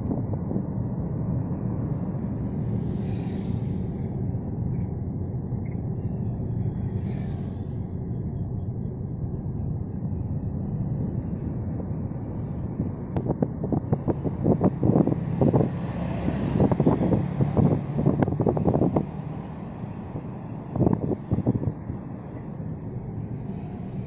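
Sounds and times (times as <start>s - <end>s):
car interior road and wind noise: 0.0s - 24.0s
insect chirring: 0.7s - 9.2s.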